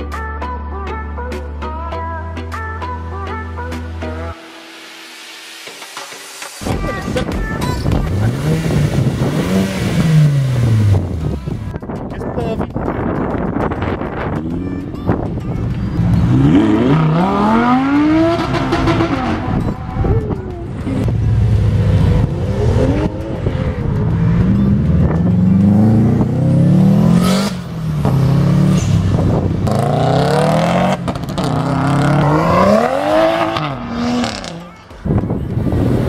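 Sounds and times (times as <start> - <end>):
cars accelerating through gears: 16.0 - 34.7.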